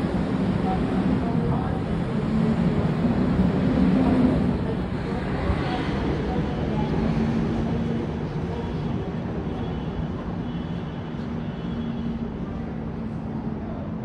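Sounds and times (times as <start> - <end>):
road traffic noise: 0.0 - 14.0.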